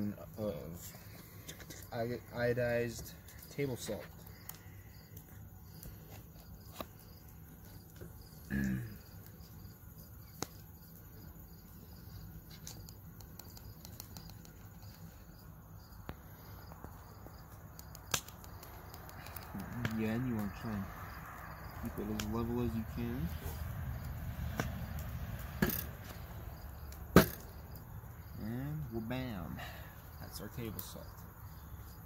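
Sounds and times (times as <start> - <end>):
crickets chirping: 0.0 - 32.0
sharp clicks: 17.7 - 20.5.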